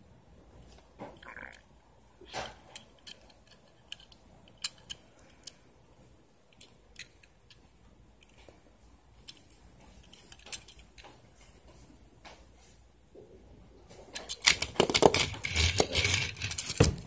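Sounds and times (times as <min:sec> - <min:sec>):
small clicks and taps of toy car: 0:02.7 - 0:05.6.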